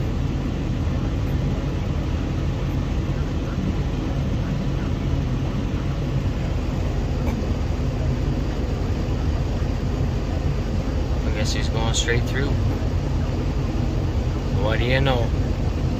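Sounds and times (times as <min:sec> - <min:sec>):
combine harvester rumbling: 0:00.0 - 0:15.9
truck engine running: 0:00.0 - 0:15.9.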